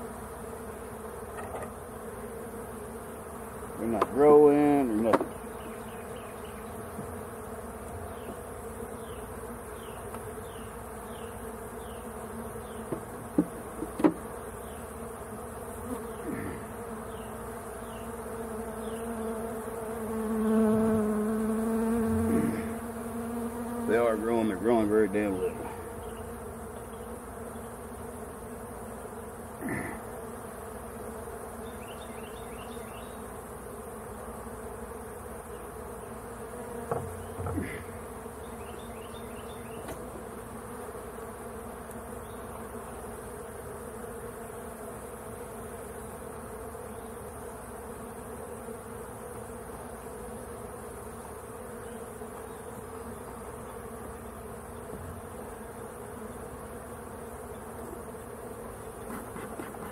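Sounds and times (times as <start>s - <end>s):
honeybees buzzing: 0.0s - 59.9s
light knocks: 36.8s - 37.7s.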